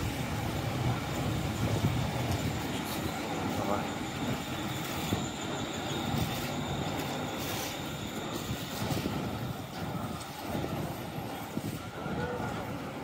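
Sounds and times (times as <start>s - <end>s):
faint high squeal: 2.5s - 9.4s.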